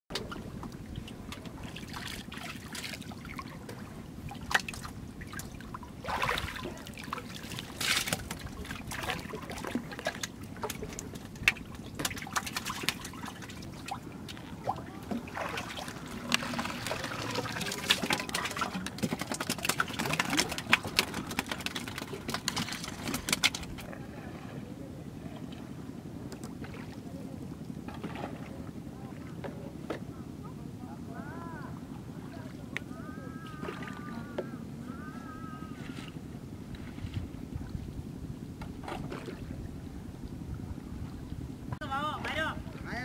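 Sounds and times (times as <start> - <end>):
water splashing and trickling: 0.1 - 24.5, 33.4 - 34.4, 38.7 - 39.8.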